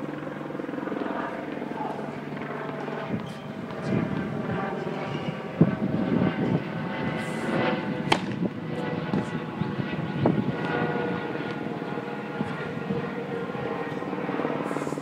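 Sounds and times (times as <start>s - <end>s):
steady mechanical drone: 0.0s - 15.0s
tennis ball bouncing on hard court: 8.1s - 8.5s, 9.1s - 9.3s.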